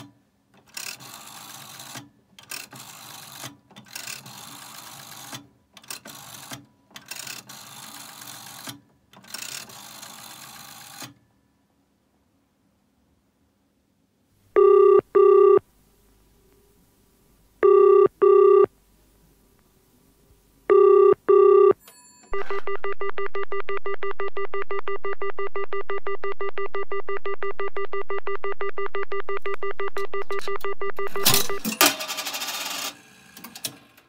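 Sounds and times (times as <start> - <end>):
double-burst telephone ringing: 14.6 - 15.6, 17.6 - 18.7, 20.7 - 23.7
phone line clicks: 20.7 - 31.8.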